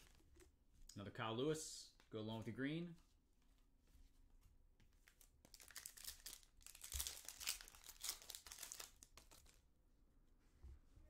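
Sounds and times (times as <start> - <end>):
foil wrapper crinkling and tearing: 5.5 - 9.6.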